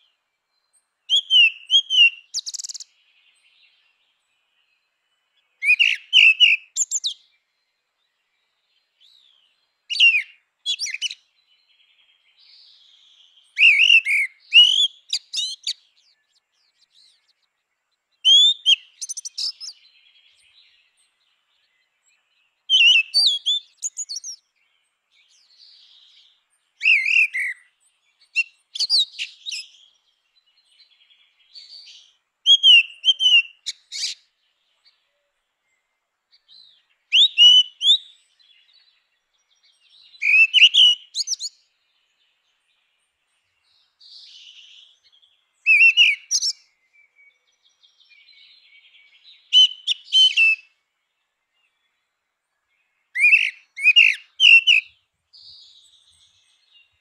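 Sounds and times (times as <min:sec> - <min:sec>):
blackbird singing fluting whistles: 0:01.1 - 0:02.9, 0:05.6 - 0:07.2, 0:09.9 - 0:11.2, 0:13.6 - 0:16.2, 0:18.2 - 0:19.8, 0:22.7 - 0:24.4, 0:26.8 - 0:29.8, 0:31.5 - 0:34.2, 0:36.6 - 0:38.2, 0:40.1 - 0:41.6, 0:45.6 - 0:47.3, 0:49.0 - 0:50.7, 0:53.1 - 0:56.2.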